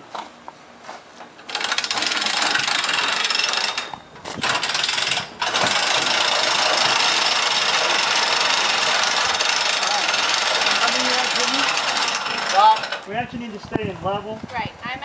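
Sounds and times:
hand-cranked winch ratcheting: 0:01.4 - 0:13.1.

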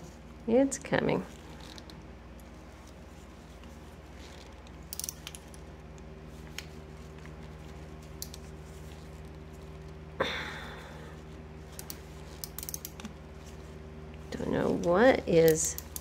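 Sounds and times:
steady low hum: 0:00.0 - 0:16.0
ratchet screwdriver clicks: 0:04.9 - 0:05.5, 0:11.8 - 0:13.0.

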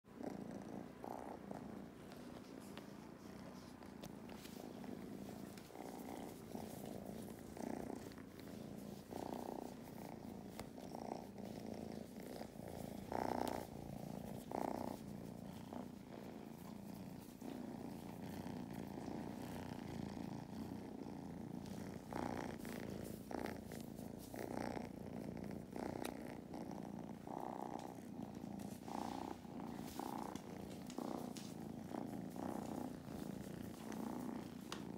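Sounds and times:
kittens purring: 0:00.1 - 0:34.9
hand brushing fur: 0:02.1 - 0:18.2, 0:28.3 - 0:34.9.

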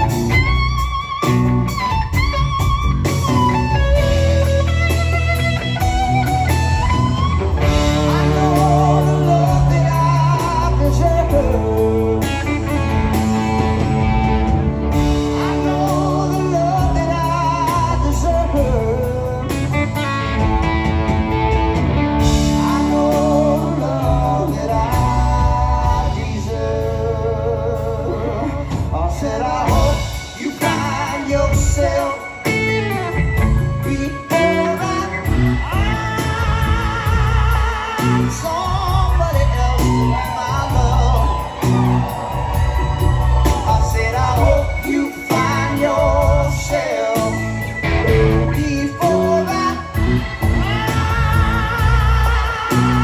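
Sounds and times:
live rock band playing: 0:00.0 - 0:53.0
wavering lead guitar notes: 0:00.0 - 0:53.0.

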